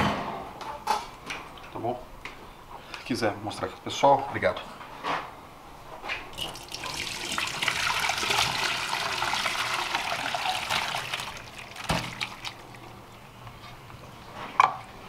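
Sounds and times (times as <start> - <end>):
water streaming: 6.4 - 13.1.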